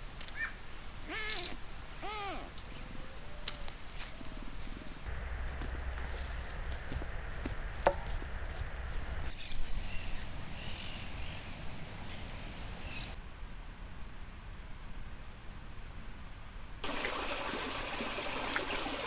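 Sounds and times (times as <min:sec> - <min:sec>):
steady hiss: 0:03.5 - 0:09.4.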